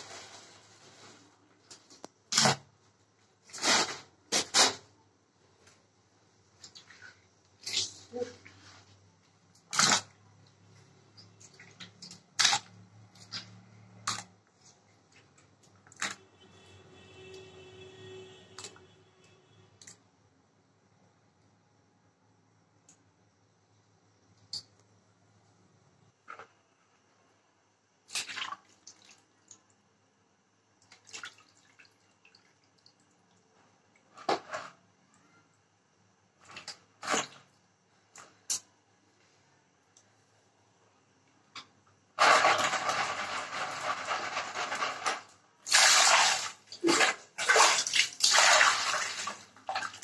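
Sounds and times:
small water drips: 28.1s - 29.8s, 30.8s - 34.1s
water splashing in a basin: 28.1s - 29.8s, 30.8s - 34.1s, 42.2s - 50.0s
fish pieces splashing into water: 45.7s - 50.0s.

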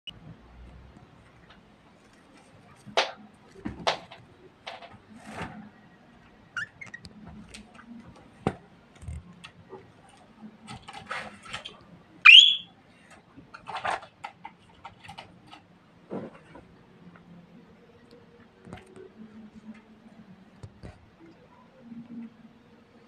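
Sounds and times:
clicks and rustles in cage: 0.9s - 5.8s, 6.6s - 12.0s, 13.0s - 16.7s.

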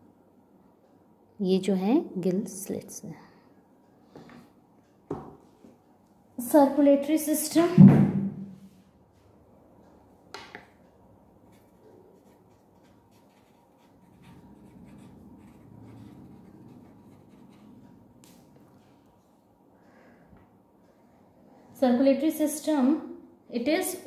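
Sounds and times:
pen scratching on paper: 11.5s - 18.0s.

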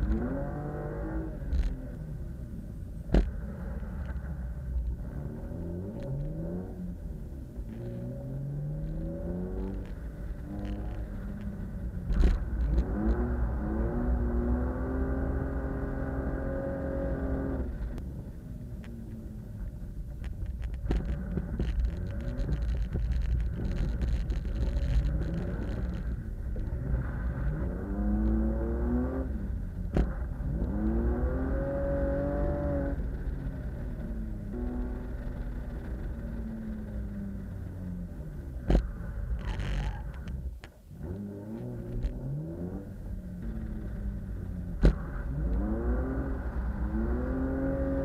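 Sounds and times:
wind and road rumble: 0.0s - 48.0s
car engine revving hard: 44.8s - 48.0s.

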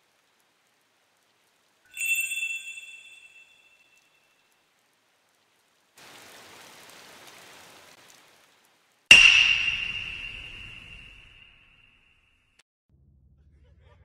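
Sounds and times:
soft rain-like hiss: 0.0s - 11.8s
metal chime strike ringing: 1.9s - 3.8s, 9.1s - 11.6s.

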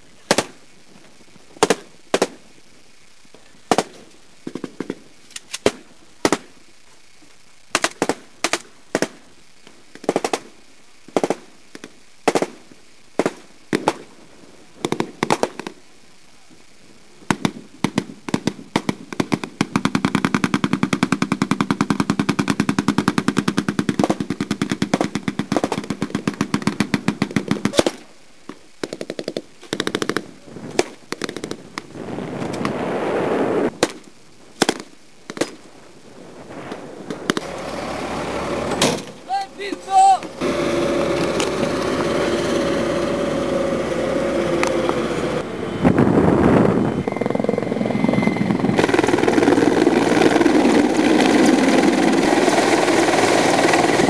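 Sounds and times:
rapid automatic gunfire: 17.3s - 28.0s, 48.8s - 54.0s.

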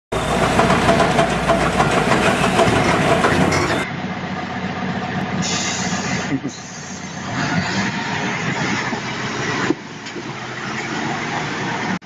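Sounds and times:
diesel truck running: 0.1s - 12.0s
hiss: 5.4s - 7.2s.

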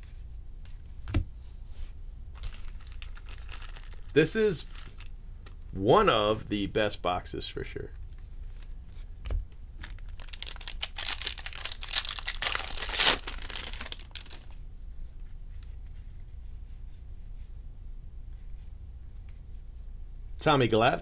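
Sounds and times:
foil wrapper tearing and crinkling: 2.4s - 5.1s, 9.8s - 14.5s.

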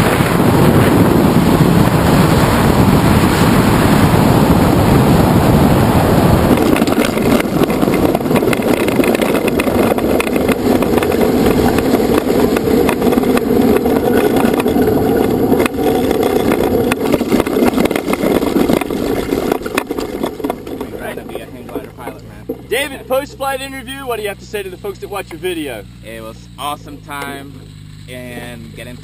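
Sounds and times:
wind on microphone: 0.0s - 23.2s
wheels rattling over pavement: 0.0s - 29.0s.

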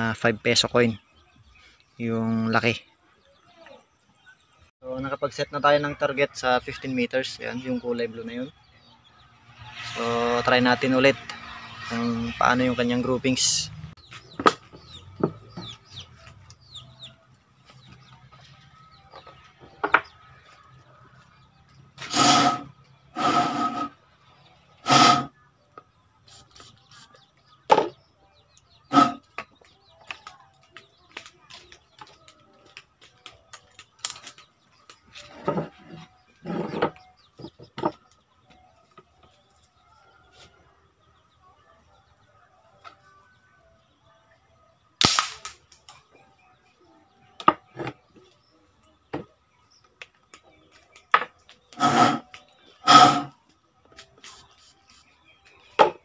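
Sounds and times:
birds chirping: 0.0s - 56.0s
marble gun shot: 45.0s - 45.6s.

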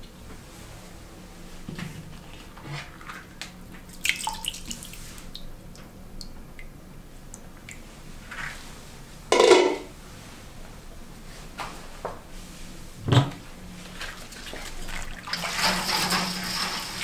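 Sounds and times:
water dripping and splashing: 3.9s - 6.7s, 14.0s - 15.7s
loud clunk: 9.3s - 9.9s.

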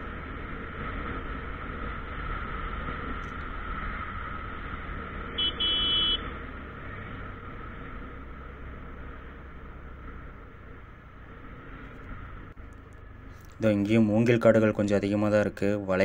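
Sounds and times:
wind noise: 0.0s - 9.2s
motorcycle engine: 0.0s - 13.6s
buzzy electric horn beeps: 5.4s - 6.3s.

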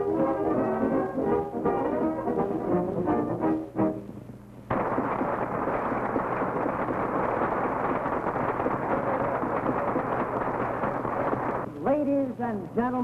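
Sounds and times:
crackling applause: 4.7s - 11.7s.

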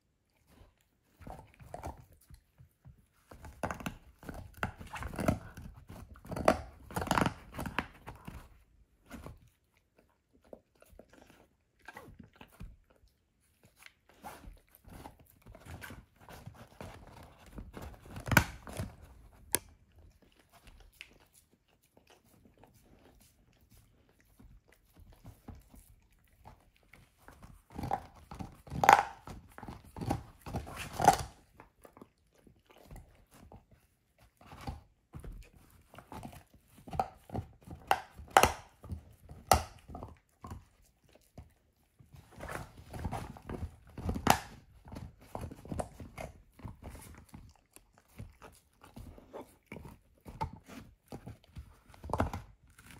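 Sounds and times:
dog crunching on a bone: 0.0s - 52.9s.

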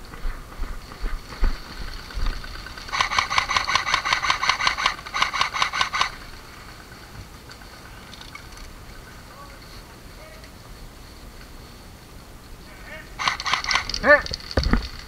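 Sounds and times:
airsoft gun firing full auto: 1.6s - 6.9s, 13.2s - 15.0s.

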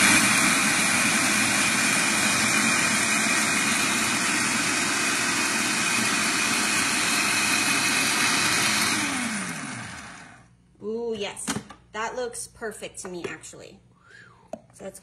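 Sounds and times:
food processor whirring: 0.0s - 10.5s.

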